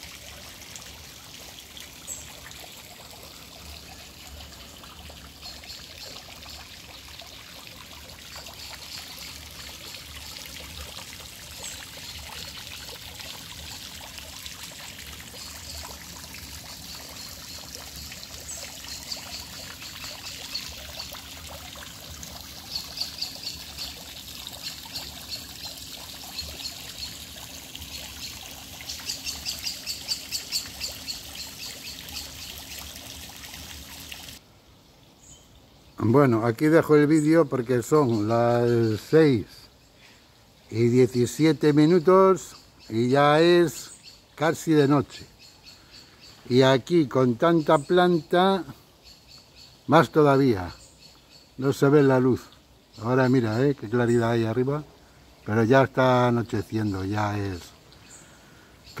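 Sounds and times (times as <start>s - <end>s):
water trickling into a pond: 0.0s - 59.0s
birds chirping: 16.7s - 21.2s, 22.6s - 32.9s, 35.2s - 54.8s, 55.5s - 59.0s.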